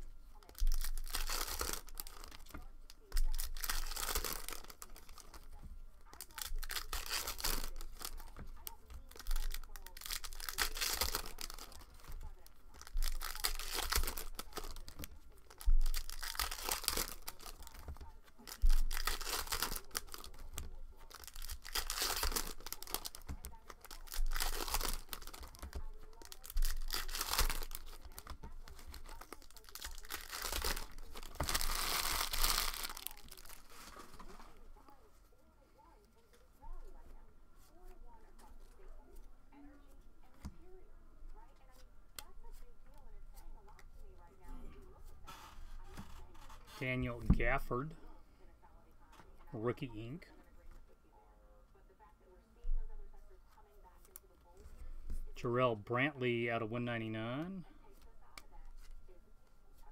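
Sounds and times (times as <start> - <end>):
foil wrapper tearing and crinkling: 0.4 - 34.4.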